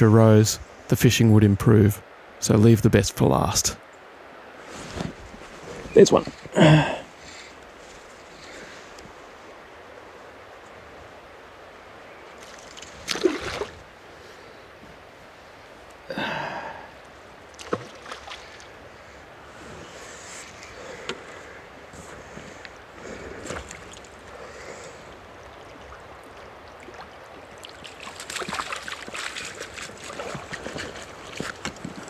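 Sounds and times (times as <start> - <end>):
river water running: 0.0 - 32.0
water splashing and sloshing: 12.2 - 15.3, 17.1 - 32.0.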